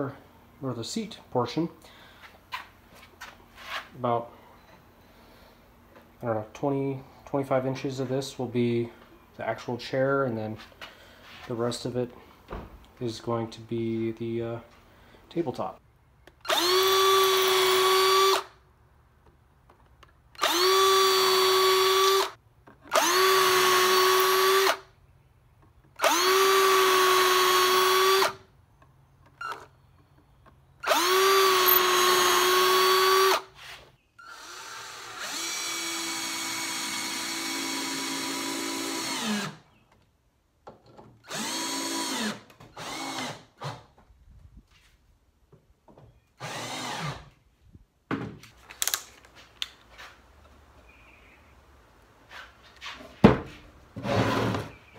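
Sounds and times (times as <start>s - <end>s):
cordless drill boring into wood: 16.4s - 18.6s, 20.4s - 24.9s, 26.0s - 28.4s, 30.8s - 33.6s, 34.2s - 39.7s, 41.2s - 43.8s, 46.4s - 47.3s.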